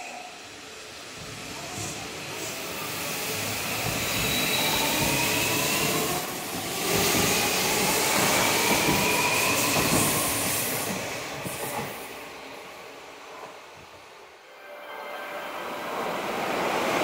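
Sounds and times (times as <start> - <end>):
train wheels rolling on rails: 1.0 - 14.1.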